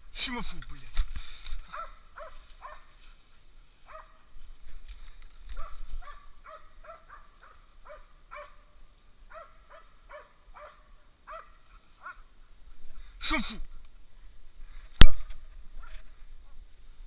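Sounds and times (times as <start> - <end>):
dog barking: 1.7 - 2.9, 3.8 - 4.2, 5.6 - 8.7, 9.3 - 12.3.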